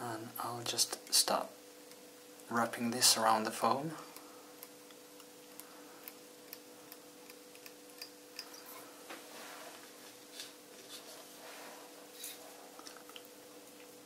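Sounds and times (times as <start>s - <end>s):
faint electrical hum: 0.0s - 14.0s
small clicks and ticks: 4.1s - 8.6s.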